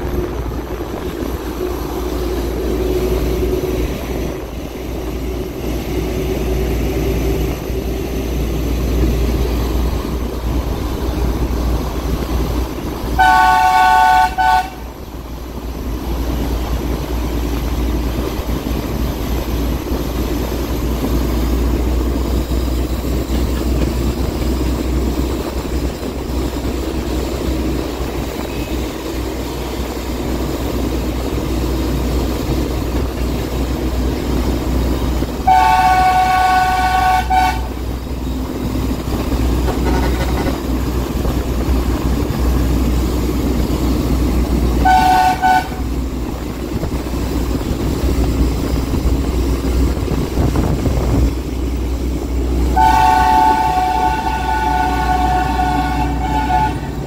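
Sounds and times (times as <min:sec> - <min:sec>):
locomotive engine rumble: 0:00.0 - 0:57.0
locomotive horn blasts: 0:13.1 - 0:14.9, 0:35.4 - 0:37.8, 0:39.7 - 0:40.6, 0:44.8 - 0:45.9, 0:52.7 - 0:57.0.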